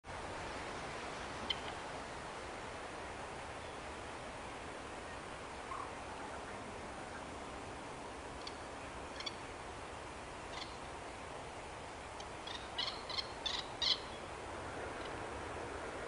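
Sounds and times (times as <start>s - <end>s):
steady background noise: 0.0s - 16.0s
short bird calls: 8.4s - 9.4s, 12.4s - 14.3s.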